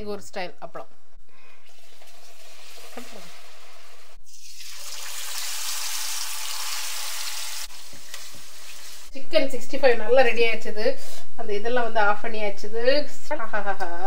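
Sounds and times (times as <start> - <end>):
hot oil sizzling: 1.8 - 9.2.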